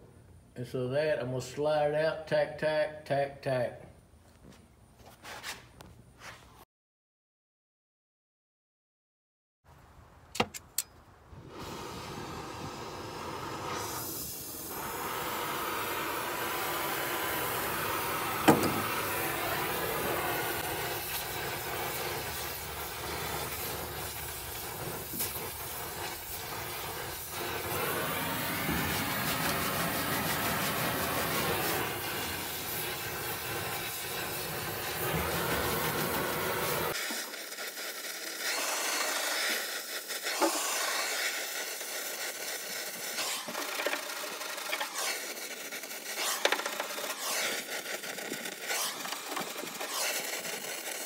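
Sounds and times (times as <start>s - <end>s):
gas torch flame hissing: 11.4s - 51.0s
sharp knock: 18.5s - 18.9s.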